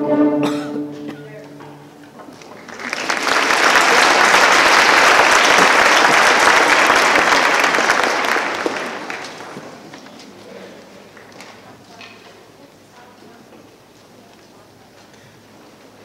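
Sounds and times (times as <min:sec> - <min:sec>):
audience applauding: 0:02.2 - 0:10.2.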